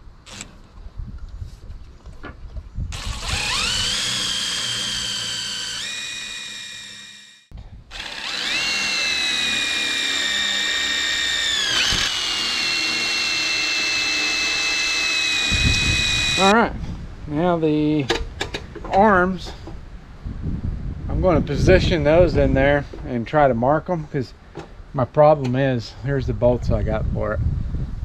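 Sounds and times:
cordless drill motor whine: 2.9 - 16.5.

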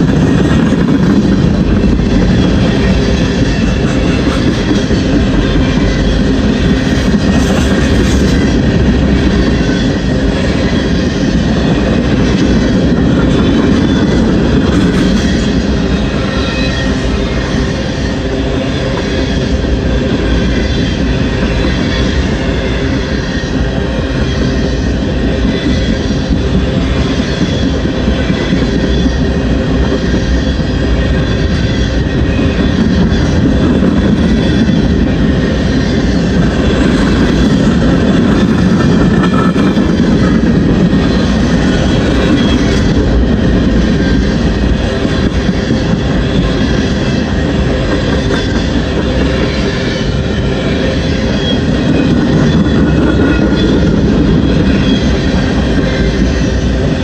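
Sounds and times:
freight train wheels on rails: 0.0 - 57.0.

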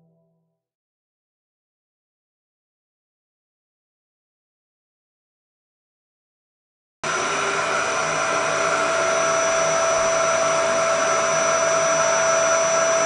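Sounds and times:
vacuum cleaner running on carpet: 7.0 - 13.0.

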